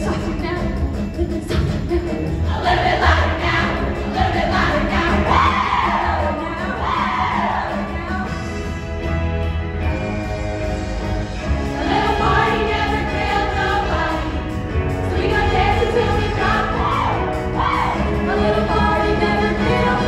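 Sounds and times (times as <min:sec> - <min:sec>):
music: 0:00.0 - 0:20.0
women's chorus singing: 0:02.4 - 0:08.4, 0:11.7 - 0:20.0.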